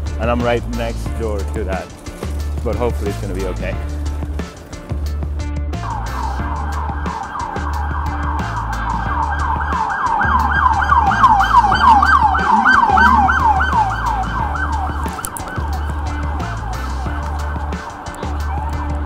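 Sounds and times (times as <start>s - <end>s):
emergency siren yelping: 5.8s - 19.0s.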